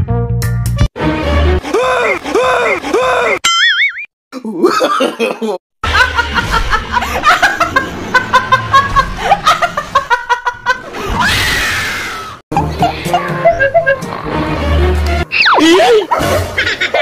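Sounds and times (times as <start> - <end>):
woman laughing: 4.5 - 10.9, 12.5 - 14.1, 15.6 - 17.0.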